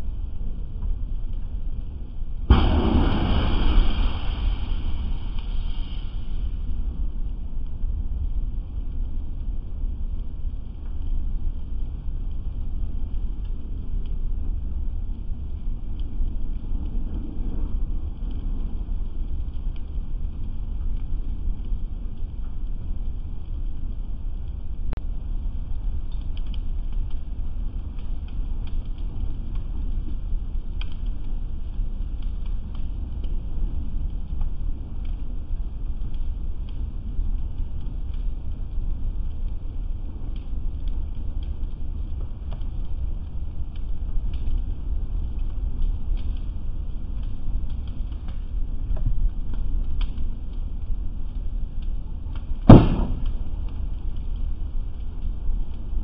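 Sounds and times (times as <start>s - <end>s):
fire crackling and popping: 0.0s - 56.0s
wind rumble on microphone: 0.0s - 56.0s
loud bang: 2.5s - 5.5s, 52.7s - 53.4s.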